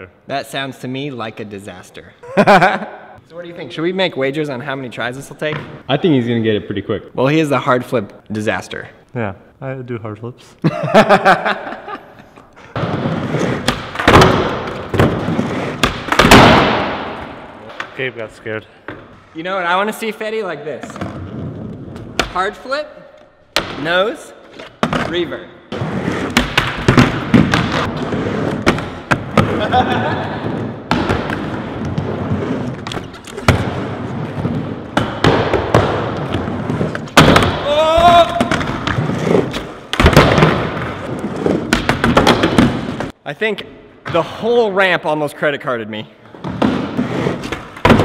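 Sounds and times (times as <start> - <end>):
skateboard thuds and clacks: 38.3 - 43.1.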